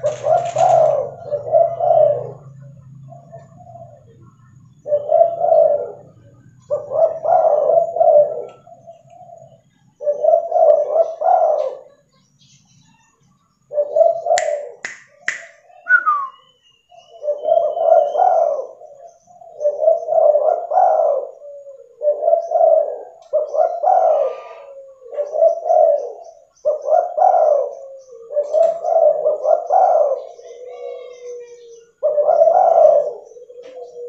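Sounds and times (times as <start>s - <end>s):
dove cooing: 0.0s - 12.1s, 12.9s - 34.0s
sharp clicks: 14.4s - 15.6s.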